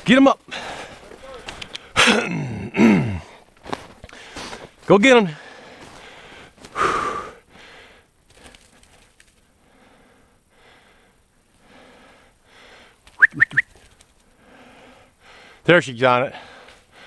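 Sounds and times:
man breathing heavily: 0.4 - 13.1, 13.8 - 15.7, 16.3 - 17.0
sharp whistle notes: 13.2 - 13.8.

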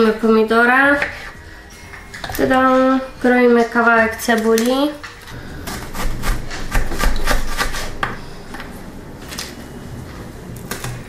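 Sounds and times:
knife chopping on wooden board: 5.6 - 8.2.

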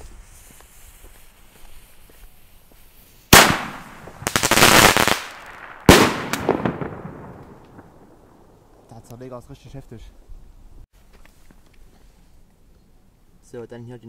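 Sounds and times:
firework crackling: 0.0 - 9.0
firework mortar bang: 3.3 - 8.2.

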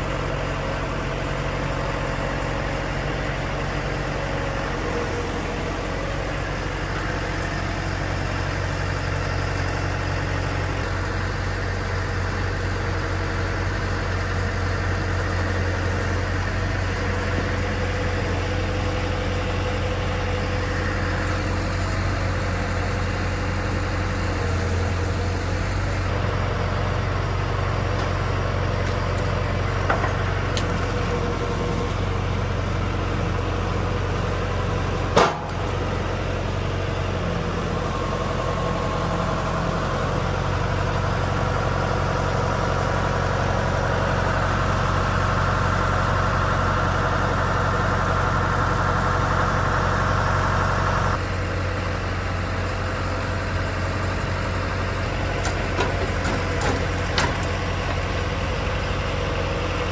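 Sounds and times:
engine running steadily: 0.0 - 59.9.

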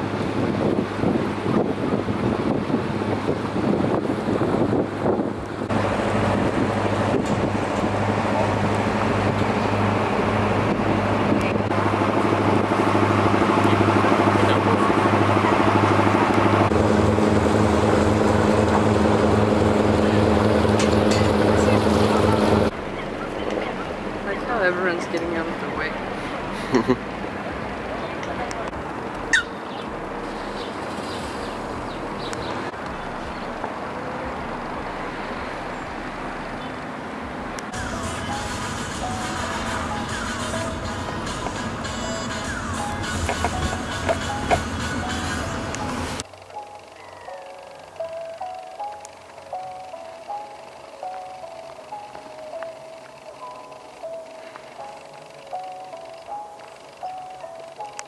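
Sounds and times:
boat engine droning: 0.0 - 58.0
outdoor background noise: 0.0 - 58.0
water rushing hiss: 37.8 - 46.2.

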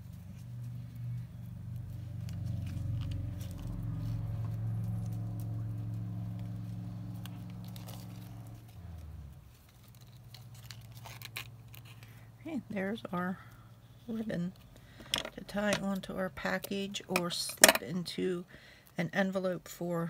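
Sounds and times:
low motor hum: 0.0 - 17.2
paper pieces clicking and rustling: 9.5 - 12.2.

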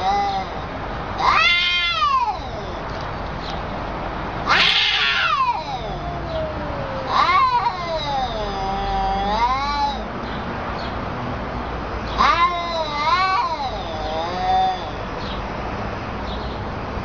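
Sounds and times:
cat yowling: 0.0 - 0.6, 1.2 - 2.9, 4.4 - 10.1, 12.2 - 15.1.

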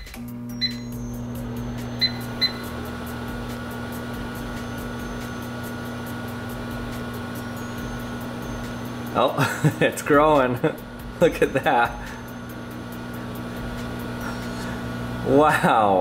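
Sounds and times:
short beeps: 0.0 - 1.2, 2.0 - 2.7
microwave oven humming: 0.0 - 16.0.

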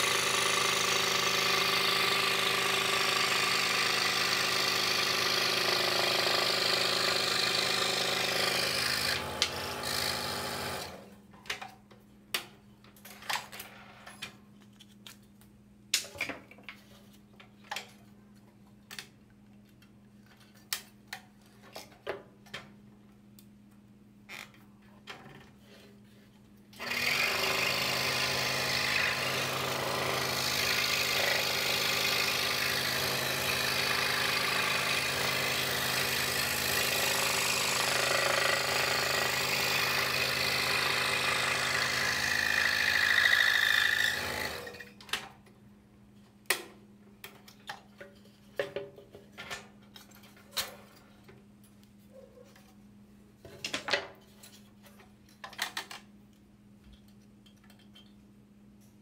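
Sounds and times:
scroll saw cutting wood: 0.0 - 11.1, 26.8 - 45.0
clicks and taps handling workpiece: 46.4 - 51.9.

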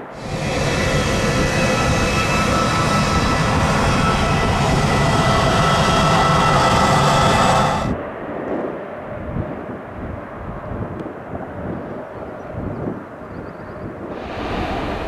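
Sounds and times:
high engine whine: 0.0 - 8.2, 14.1 - 15.0
jet engine rumble: 0.0 - 15.0.

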